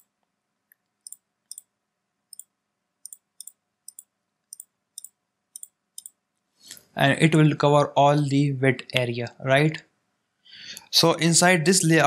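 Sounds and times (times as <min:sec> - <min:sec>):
computer mouse clicks: 0:00.7 - 0:01.7, 0:02.3 - 0:06.2.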